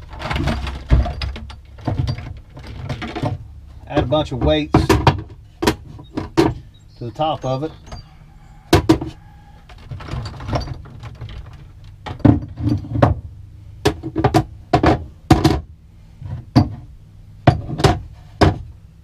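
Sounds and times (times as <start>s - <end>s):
metal weights knocking on plastic box: 8.7s - 9.2s, 13.8s - 15.7s, 17.4s - 18.7s.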